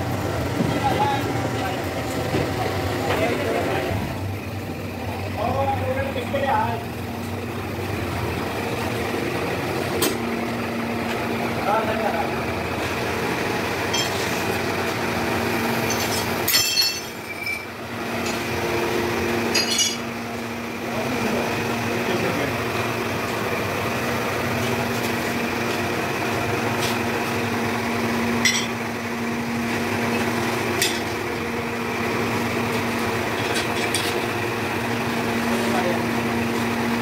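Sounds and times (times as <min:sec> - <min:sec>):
metal clinks: 0:15.9 - 0:17.7, 0:19.5 - 0:20.0.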